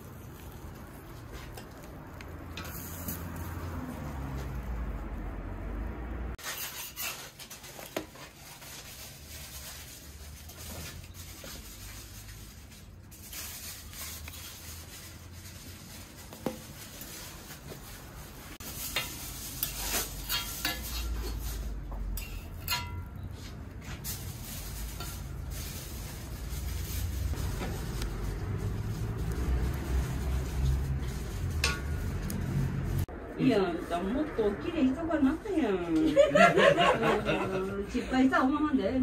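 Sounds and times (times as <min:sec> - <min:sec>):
metal spatula scraping griddle: 0:00.0 - 0:04.7, 0:06.4 - 0:12.4, 0:18.6 - 0:28.0, 0:28.6 - 0:33.1
batter sizzling: 0:00.0 - 0:33.1.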